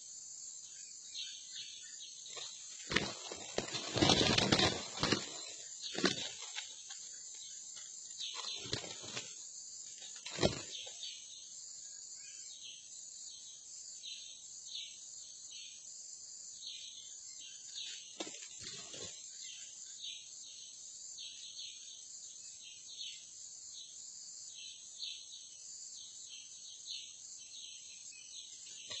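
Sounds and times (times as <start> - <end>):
insect chirps: 0.0 - 29.0
insects buzzing: 0.0 - 29.0
thumps and rustles: 2.3 - 7.0.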